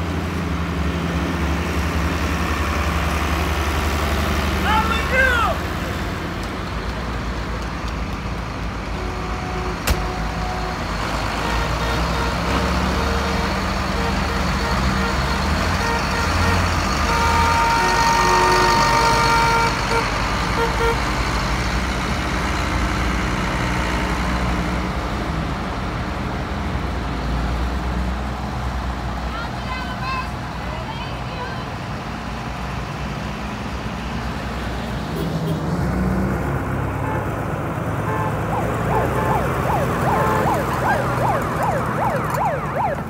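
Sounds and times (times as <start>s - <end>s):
tractor engines running: 0.0s - 43.0s
long multi-note horn blast: 11.4s - 21.0s, 38.0s - 40.6s.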